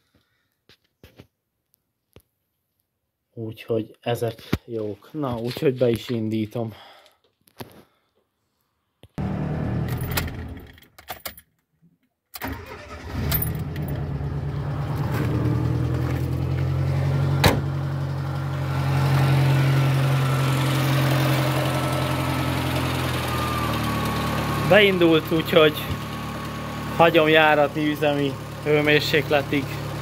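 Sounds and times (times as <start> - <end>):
car engine starting and idling: 9.2 - 10.8, 12.4 - 30.0.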